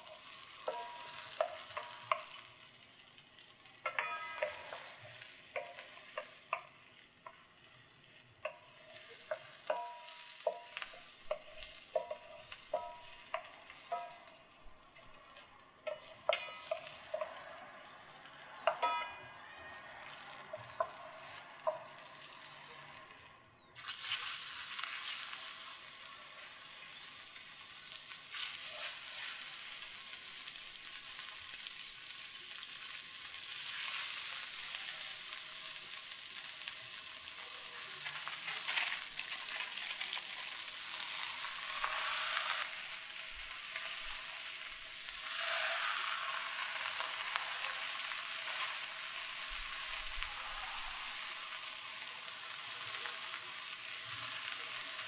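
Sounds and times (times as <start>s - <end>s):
meat sizzling in oil: 0.0s - 55.0s.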